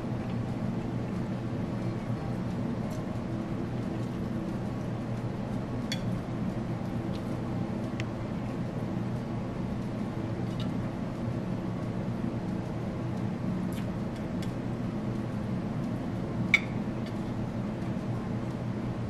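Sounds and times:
chopsticks clicking and chewing: 13.7s - 14.6s.

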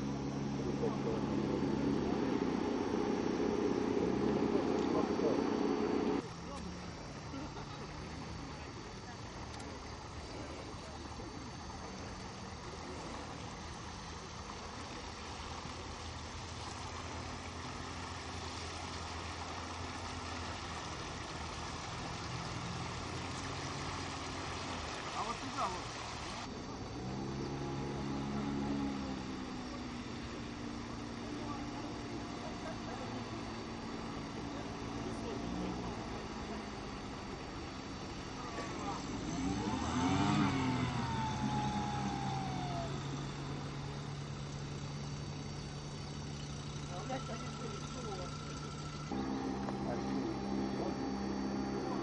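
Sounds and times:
boat motor humming: 0.0s - 52.0s
hiss of wind and water: 0.0s - 52.0s.

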